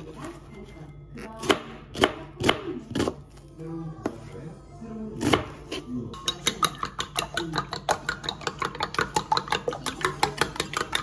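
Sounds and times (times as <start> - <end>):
whisk beating against ceramic bowl: 6.2 - 11.0.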